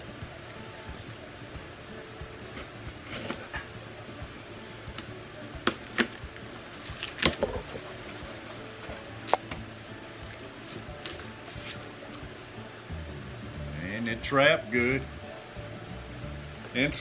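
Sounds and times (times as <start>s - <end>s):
cardboard cracking: 6.8s - 8.2s.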